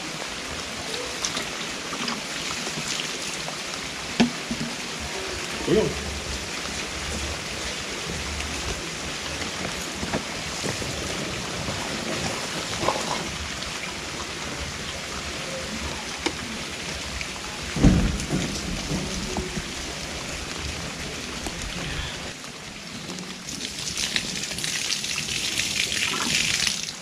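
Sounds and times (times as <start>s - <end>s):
steady rain falling: 0.0s - 27.0s
loud thump: 17.8s - 19.6s.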